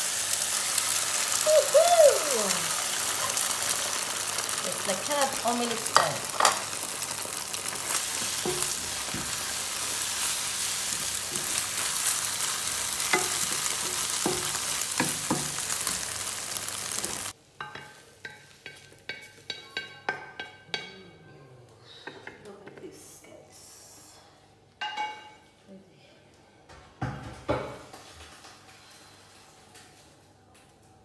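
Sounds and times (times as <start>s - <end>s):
food sizzling in a pan: 0.0s - 20.6s.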